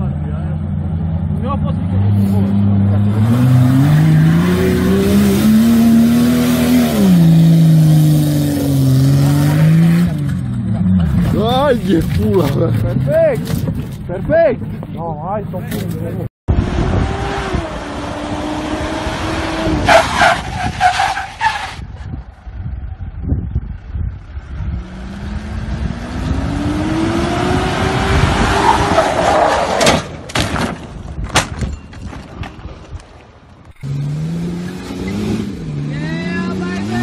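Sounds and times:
engine revving: 0.6 - 11.8, 16.5 - 19.9, 24.5 - 29.2, 33.8 - 37.0
wind noise on microphone: 16.5 - 21.0, 21.6 - 29.3.

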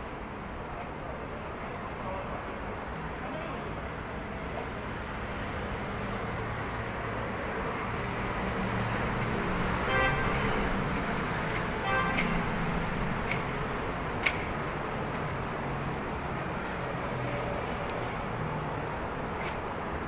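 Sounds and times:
city street traffic hum: 0.0 - 20.0
car horn toots: 9.9 - 10.6, 11.8 - 12.4.

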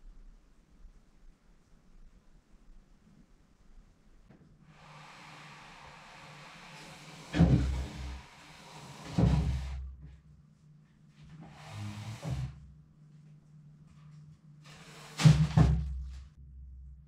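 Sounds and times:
faint steady hum: 0.0 - 15.1.

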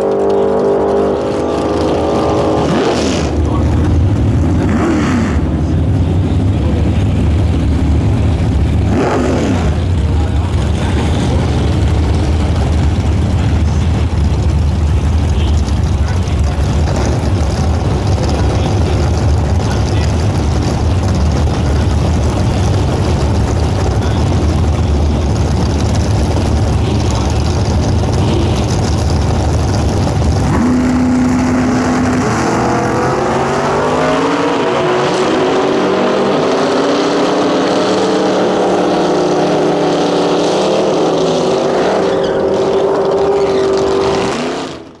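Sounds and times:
cars accelerating at full throttle: 0.0 - 45.0
muscle car engines idling: 3.3 - 32.2.

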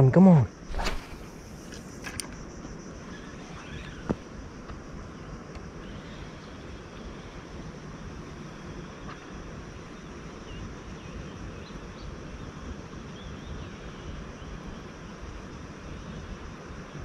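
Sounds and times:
faint bird chirps: 0.5 - 4.3.

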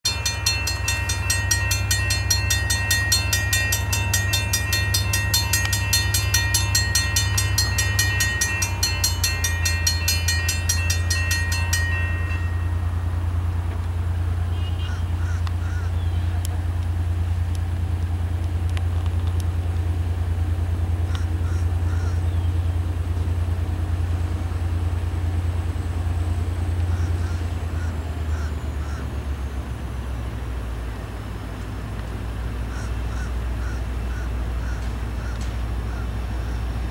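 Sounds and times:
crossing warning bell ringing: 0.0 - 16.1
diesel locomotive rumble: 0.0 - 36.9.

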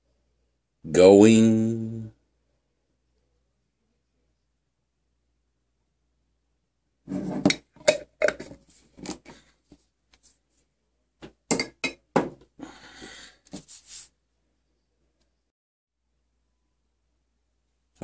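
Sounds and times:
metal clinking against glass jar: 11.5 - 12.0.

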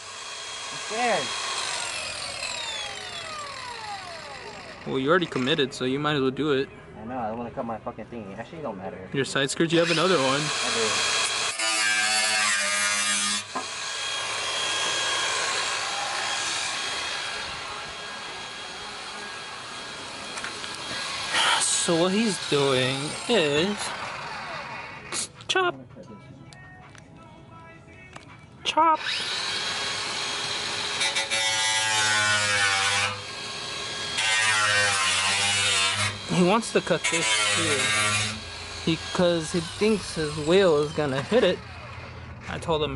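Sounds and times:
power tool motor running: 0.0 - 5.5, 9.9 - 25.1, 29.0 - 42.2
rough rasping of cutting: 9.8 - 25.4, 29.0 - 42.6.

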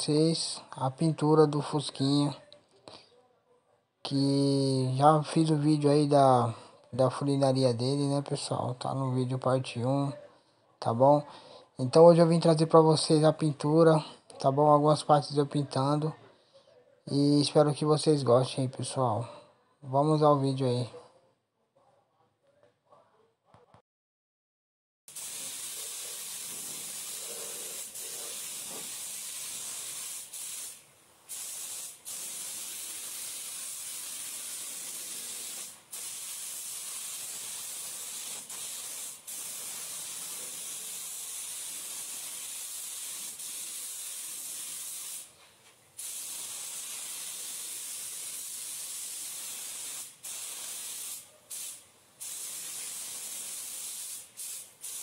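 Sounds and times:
paint spray gun hissing: 25.1 - 45.3, 46.0 - 55.0.

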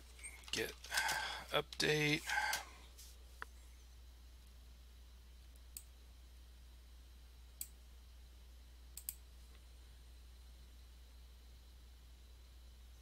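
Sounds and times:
low steady hum: 0.0 - 13.0
faint sharp clicks: 9.0 - 9.6.

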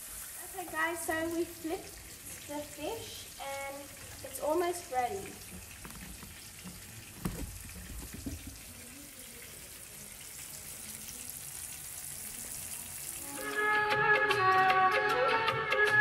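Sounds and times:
fish sizzling in hot oil: 0.0 - 13.7.

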